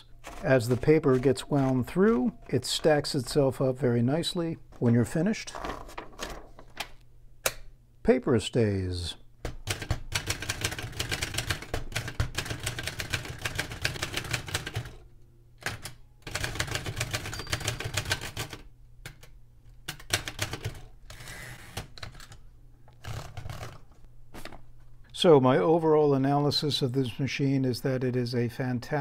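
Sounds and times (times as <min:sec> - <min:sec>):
manual typewriter keystrokes: 0:00.1 - 0:03.7, 0:09.5 - 0:15.0, 0:15.6 - 0:20.9.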